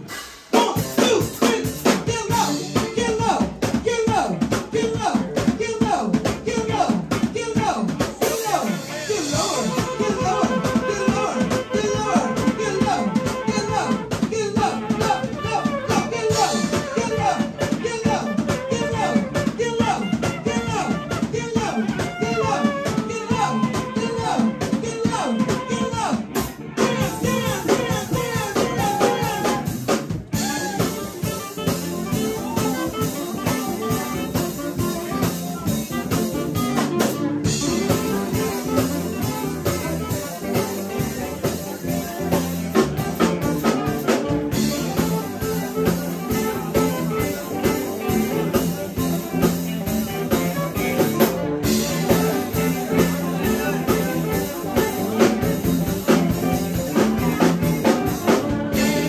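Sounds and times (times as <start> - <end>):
drum kit: 0.0 - 59.0
electric bass: 0.0 - 59.0
electric guitar: 0.0 - 59.0.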